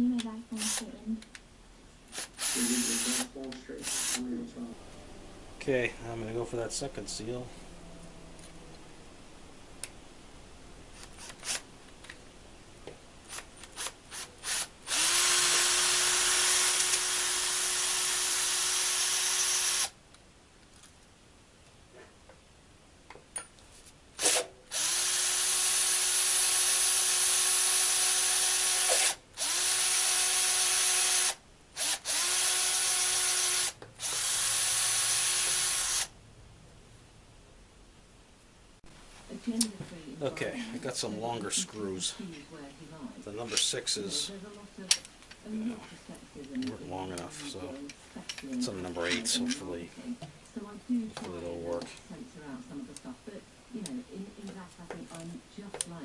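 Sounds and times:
electric drill drilling: 0.6s - 0.8s, 2.1s - 4.2s, 11.2s - 11.6s, 13.3s - 20.0s, 24.2s - 36.1s.

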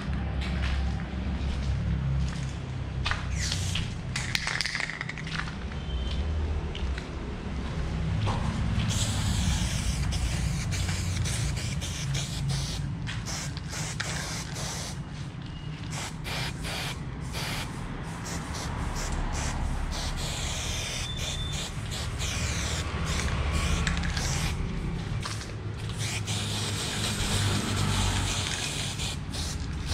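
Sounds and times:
spray-paint can hissing: 3.3s - 5.0s, 8.8s - 15.0s, 15.9s - 24.6s, 25.2s - 29.9s.

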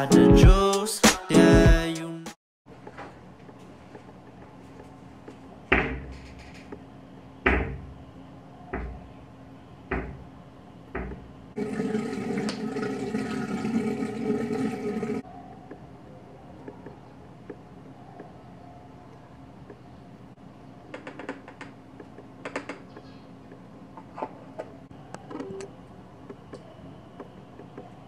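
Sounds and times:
sharp knocks: 9.9s - 10.2s, 11.0s - 11.3s
water running: 11.6s - 15.2s.

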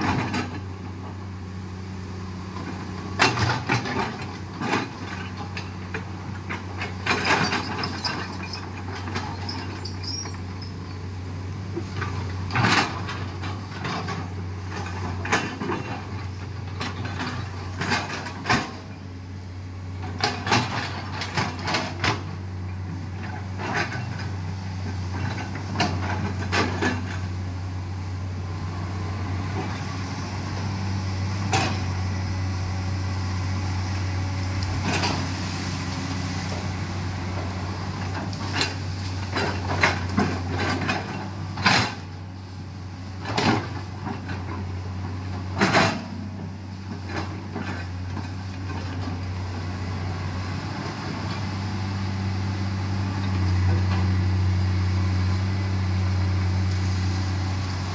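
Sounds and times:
excavator diesel engine running: 0.0s - 57.9s.

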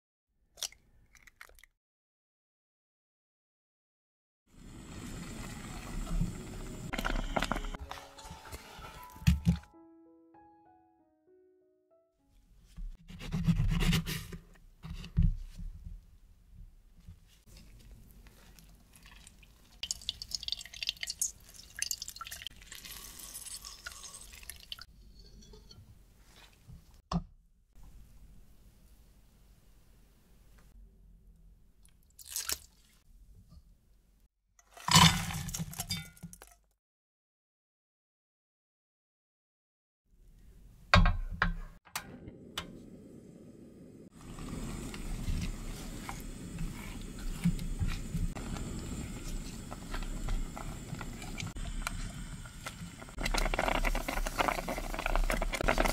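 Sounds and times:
juice dripping into glass jug: 18.6s - 24.9s
spatula stirring fruit in a pot: 44.2s - 55.9s.

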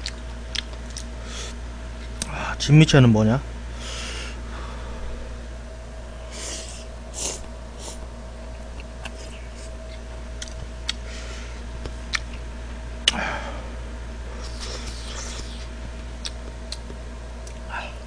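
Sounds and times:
slurping noodles: 14.4s - 15.7s.

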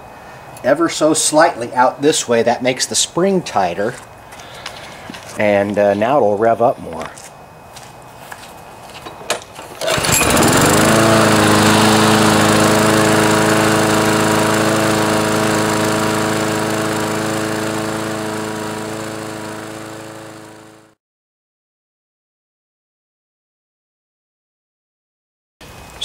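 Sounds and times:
lawn mower engine revving: 9.6s - 21.0s.

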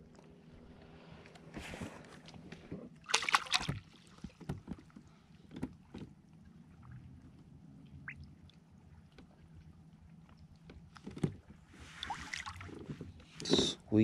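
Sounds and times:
knocks and clatter on kayak: 3.6s - 6.2s, 10.6s - 11.6s.

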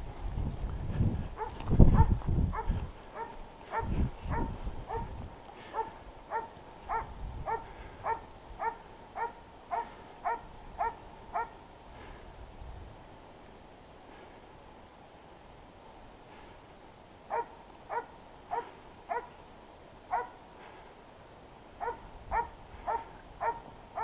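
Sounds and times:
dog barking: 1.4s - 5.1s, 5.7s - 11.6s, 17.3s - 19.3s, 20.1s - 20.4s, 21.8s - 24.0s.

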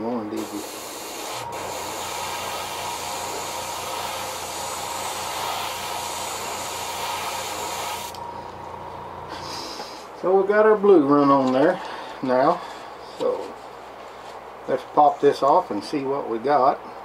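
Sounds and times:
airbrush hissing: 0.4s - 8.2s.

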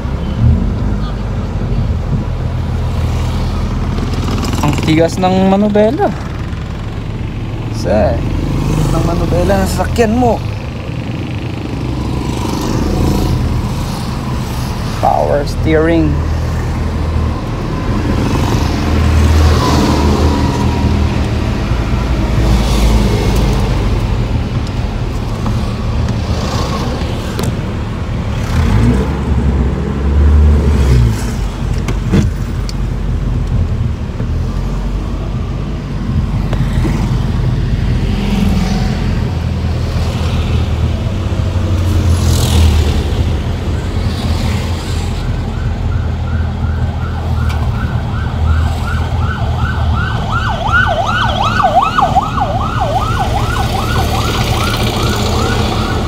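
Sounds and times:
car engine and road noise: 0.0s - 56.0s
siren: 16.3s - 22.4s, 43.5s - 56.0s.

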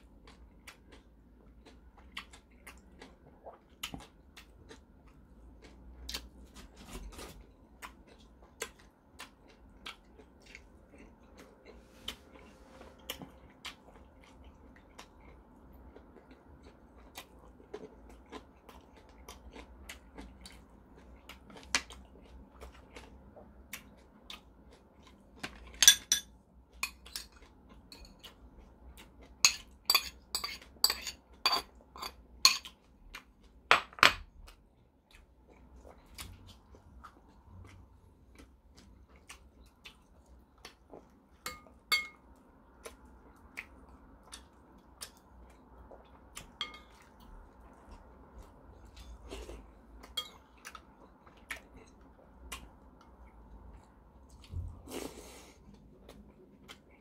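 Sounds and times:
spoon clinking on ceramic bowls: 25.8s - 27.3s, 29.4s - 32.6s, 41.4s - 42.2s, 46.6s - 47.0s, 50.2s - 50.4s.

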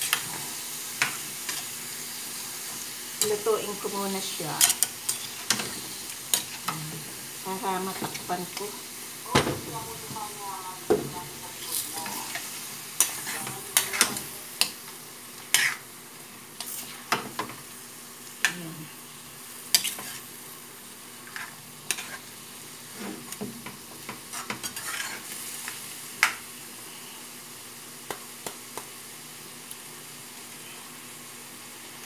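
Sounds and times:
chicken sizzling in a wok: 0.0s - 32.0s
metal spatula scraping a pan: 4.7s - 6.6s, 11.6s - 14.4s, 15.5s - 15.8s, 19.7s - 20.3s, 21.3s - 22.3s, 24.3s - 25.3s.

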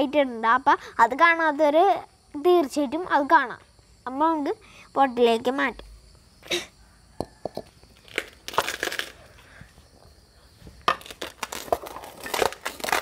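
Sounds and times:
soil crunching: 10.8s - 13.0s.

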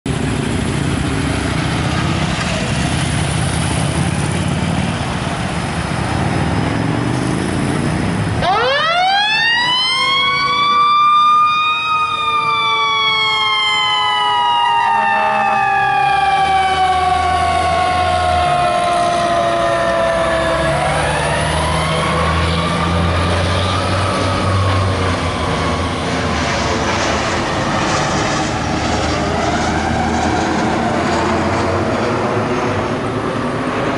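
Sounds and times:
emergency vehicle siren winding: 8.4s - 26.4s.

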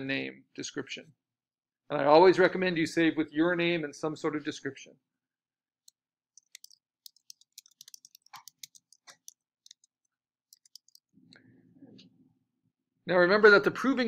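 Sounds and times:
computer keyboard typing: 5.9s - 11.1s.

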